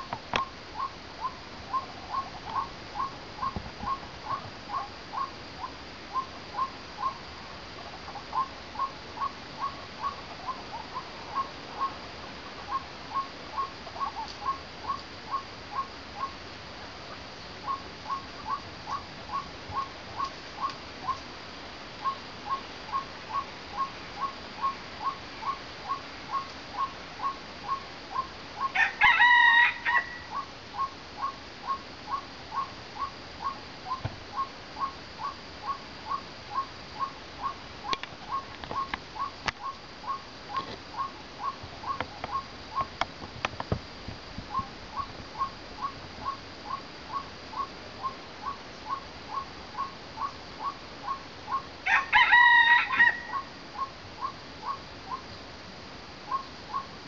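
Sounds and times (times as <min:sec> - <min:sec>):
waterhen calling: 0:00.0 - 0:07.2, 0:08.0 - 0:16.4, 0:17.0 - 0:21.3, 0:22.0 - 0:42.9, 0:44.5 - 0:55.3, 0:56.3 - 0:57.0
rooster crowing: 0:28.6 - 0:30.4, 0:51.8 - 0:53.5.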